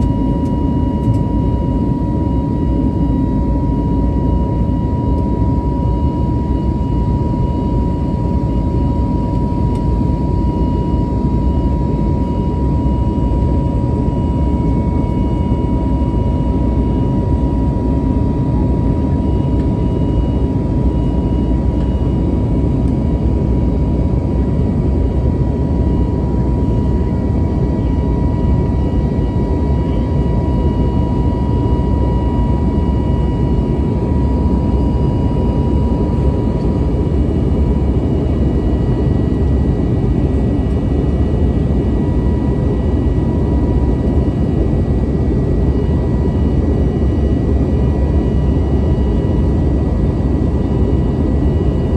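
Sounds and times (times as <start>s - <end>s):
airplane cabin engine rumble: 0.0s - 51.9s
thin steady whine: 0.0s - 51.9s.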